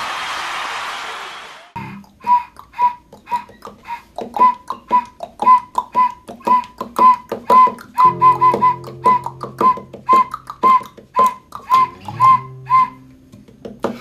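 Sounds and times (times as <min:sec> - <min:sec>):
wooden flute toots: 0:01.8 - 0:13.1.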